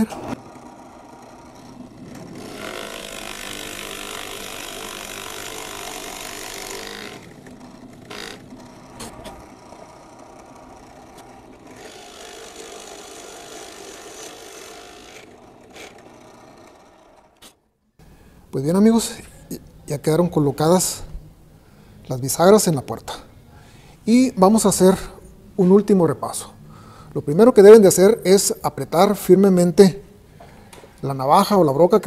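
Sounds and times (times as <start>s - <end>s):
drill press boring into wood: 0.0s - 17.6s.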